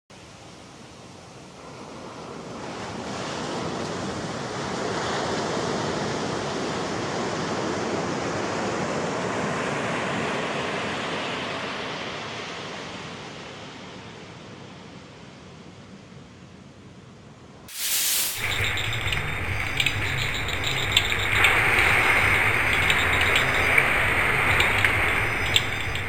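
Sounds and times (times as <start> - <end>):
ocean surf rushing: 17.7 - 26.0.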